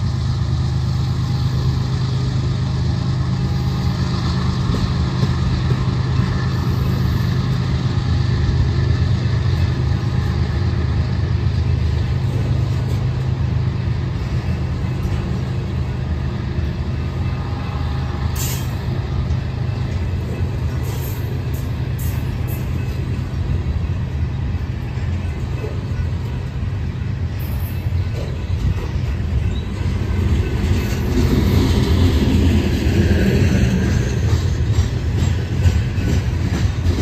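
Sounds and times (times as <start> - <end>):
train wheels rumbling on track: 0.0 - 37.0.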